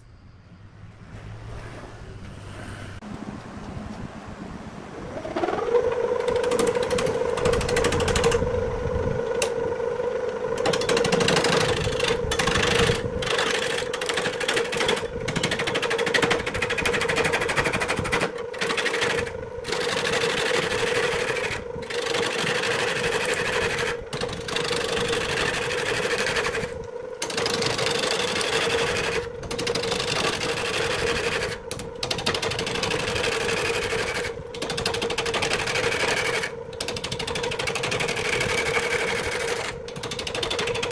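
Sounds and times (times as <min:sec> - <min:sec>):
wood lathe humming: 0:05.0 - 0:40.9.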